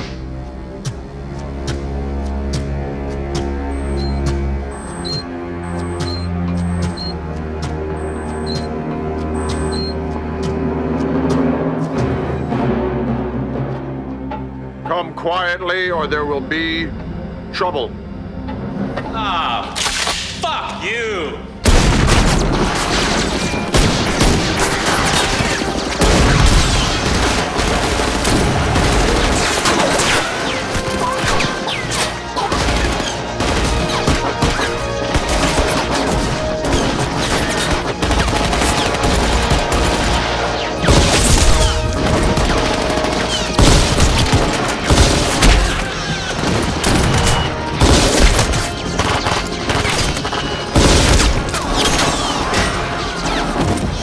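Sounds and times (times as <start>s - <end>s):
action music: 0.0s - 54.0s
heavy automatic gunfire: 21.7s - 31.6s, 32.4s - 52.4s.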